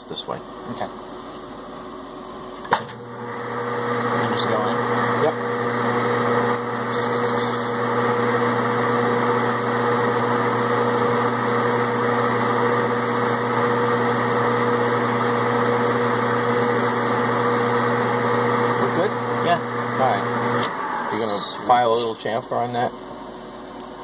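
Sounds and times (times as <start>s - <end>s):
metal lathe humming: 3.0s - 22.2s.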